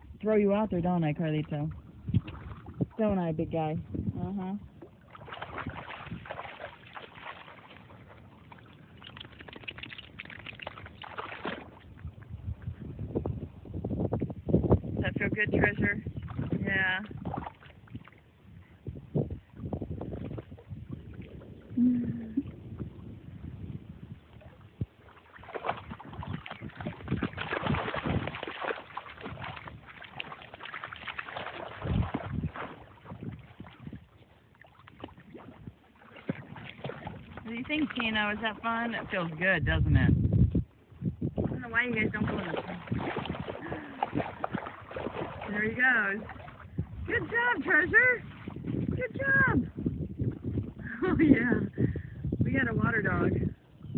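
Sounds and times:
water splashing from swimming dog: 0:00.0 - 0:12.7, 0:15.0 - 0:51.6.

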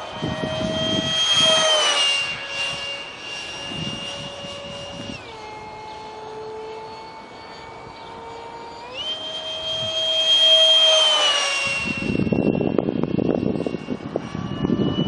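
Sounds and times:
electric ducted fan whining: 0:00.0 - 0:15.0.

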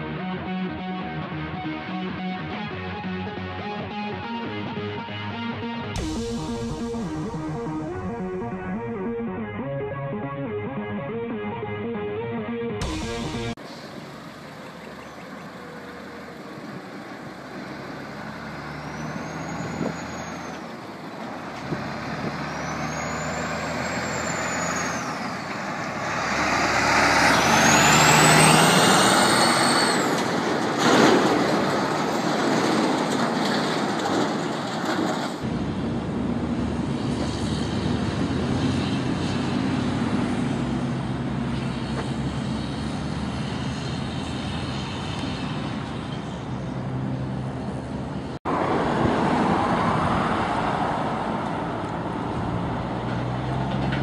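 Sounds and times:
truck engine and tyre noise: 0:00.0 - 0:54.0
sharp hiss or bang: 0:06.0 - 0:08.6, 0:12.8 - 0:13.8
high whistling whines: 0:27.5 - 0:30.3.

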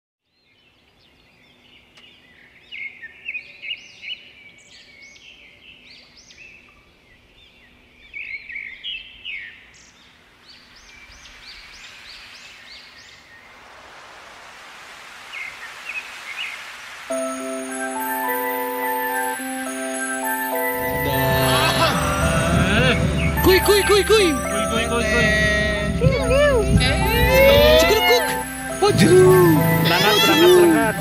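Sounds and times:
faint hiss: 0:08.9 - 0:31.0
birds chirping: 0:17.9 - 0:31.0.

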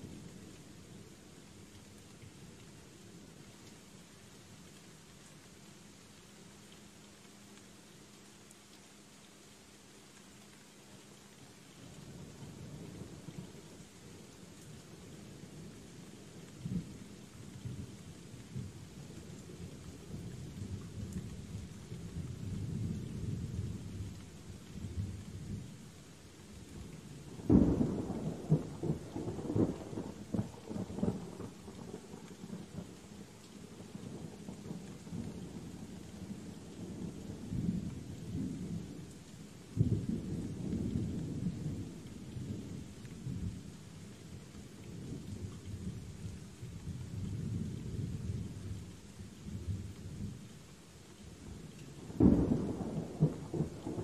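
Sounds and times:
steady rain: 0:00.0 - 0:54.0
rolling thunder: 0:52.0 - 0:54.0.

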